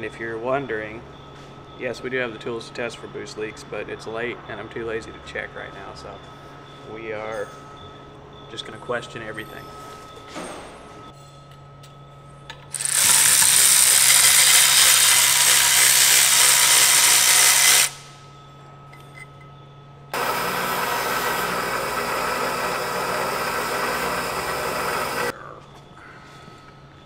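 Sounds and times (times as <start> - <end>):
bench grinder running: 12.7 - 18.0, 20.2 - 25.3
hand-held power tool hissing: 12.7 - 18.0, 20.2 - 25.3.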